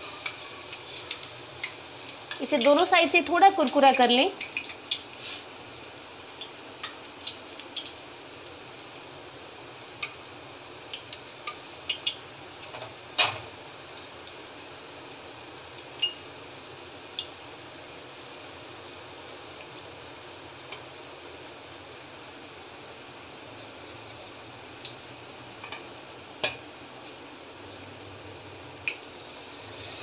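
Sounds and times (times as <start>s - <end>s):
oil sizzling: 0.0s - 30.0s
knife scraping metal pan: 29.6s - 30.0s.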